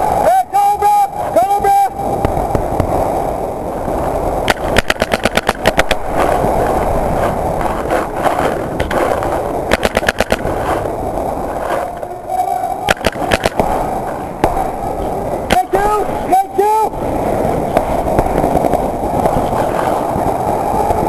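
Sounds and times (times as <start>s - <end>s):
paintball markers firing: 4.5s - 6.4s, 7.6s - 10.8s, 12.9s - 13.7s.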